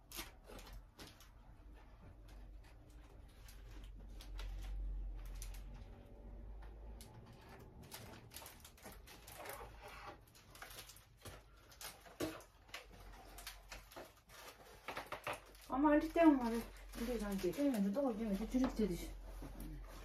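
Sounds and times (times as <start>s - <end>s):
foil balloons crinkling: 0.0s - 6.3s, 6.9s - 20.0s.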